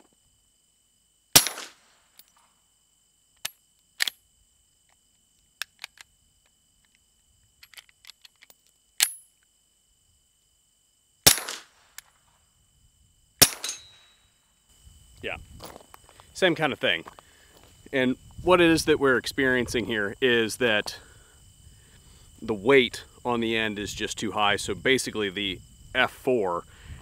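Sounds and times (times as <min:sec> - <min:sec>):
suppressed pistol shots: 0:01.4 - 0:01.8, 0:11.2 - 0:12.0, 0:13.4 - 0:14.0.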